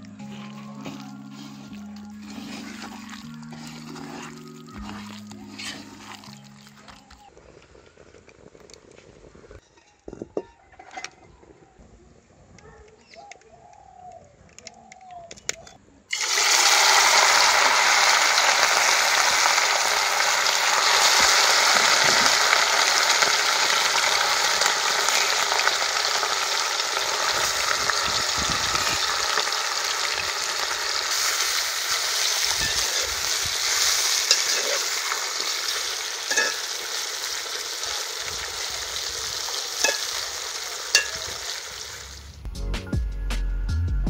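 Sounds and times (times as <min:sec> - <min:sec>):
chicken sizzling in hot oil: 0:00.0 - 0:07.3, 0:16.1 - 0:42.4
metal spoon clicking on pan: 0:36.3 - 0:36.6, 0:39.8 - 0:40.2, 0:40.9 - 0:41.3.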